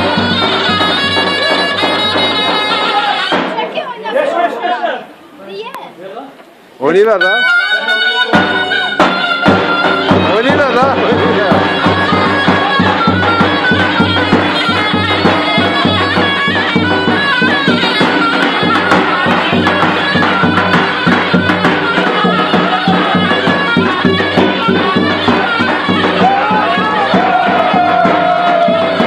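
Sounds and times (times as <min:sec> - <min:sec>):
reedy wind instrument melody: 0:00.0 - 0:03.8, 0:06.9 - 0:29.0
bass drum beating: 0:08.4 - 0:29.0.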